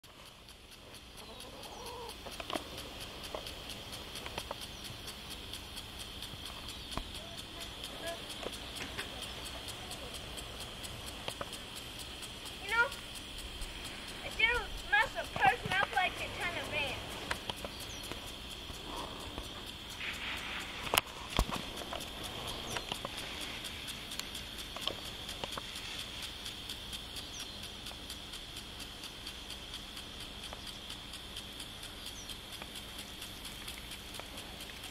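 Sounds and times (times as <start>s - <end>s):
rapid chirps: 0.0s - 34.9s
light clicks: 0.2s - 34.9s
hen clucking: 0.9s - 20.0s
high-pitched background drone: 0.9s - 26.3s.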